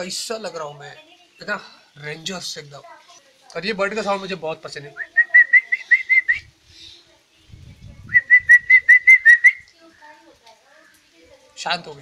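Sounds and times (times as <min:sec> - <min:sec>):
man whistling bird call: 0:05.0 - 0:06.5, 0:08.2 - 0:09.7.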